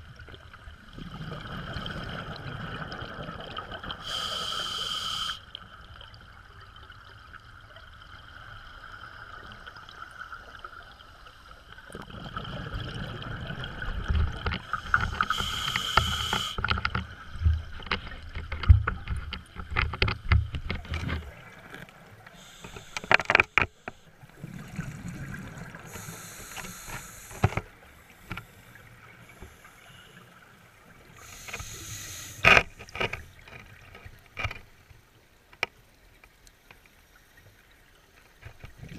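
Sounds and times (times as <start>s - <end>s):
exhaled bubbles rumbling: 0.6s - 4.0s, 11.9s - 15.4s, 24.3s - 26.0s
regulator hissing inhalations: 4.0s - 5.4s, 14.8s - 16.6s, 22.4s - 24.1s, 25.9s - 30.2s, 31.2s - 32.5s.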